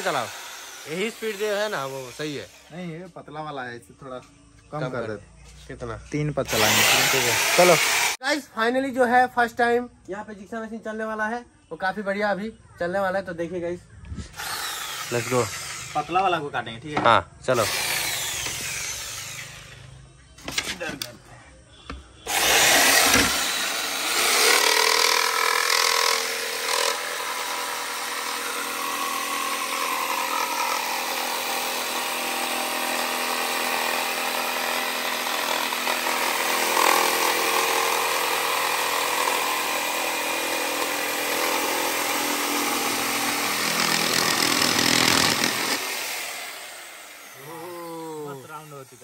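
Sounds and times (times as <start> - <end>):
electric jigsaw cutting plywood: 0.0 - 2.6, 6.5 - 8.2, 14.4 - 16.1, 17.6 - 19.8, 22.3 - 49.0.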